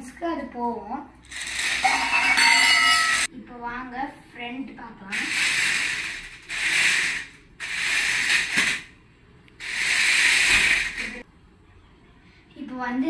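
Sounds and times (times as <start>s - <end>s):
toy car motors whirring: 1.3s - 2.1s, 5.1s - 8.9s, 9.6s - 11.2s.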